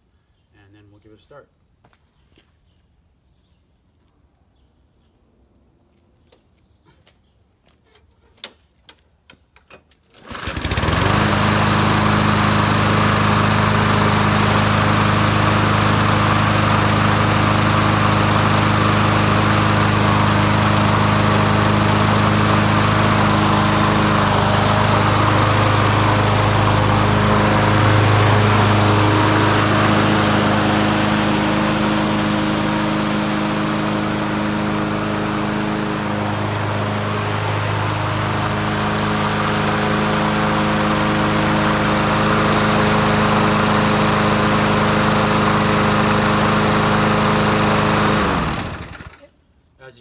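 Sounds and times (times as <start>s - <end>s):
starter cord pulled: 7.9s - 11.8s, 20.7s - 31.4s, 35.9s - 36.2s
lawn mower engine running: 10.0s - 49.3s.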